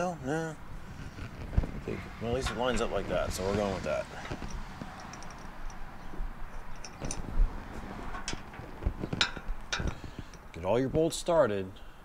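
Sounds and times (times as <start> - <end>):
metal parts clicking and knocking: 4.2 - 5.8, 6.5 - 7.3, 8.1 - 10.5.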